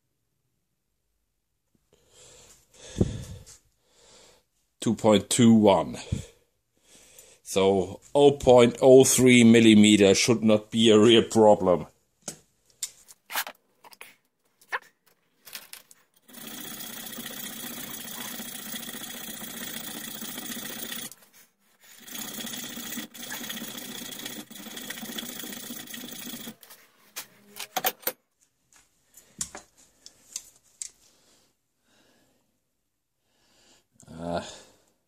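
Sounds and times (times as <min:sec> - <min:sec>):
metal parts clicking and knocking: 0:27.6 - 0:28.2.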